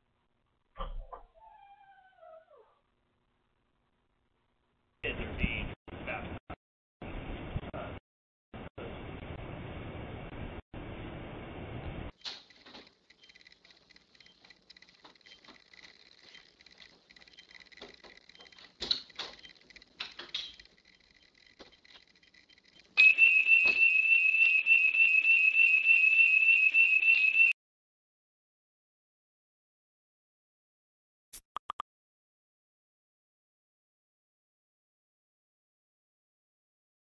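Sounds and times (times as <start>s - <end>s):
faint clicks and knocks: 12.2s - 23.0s.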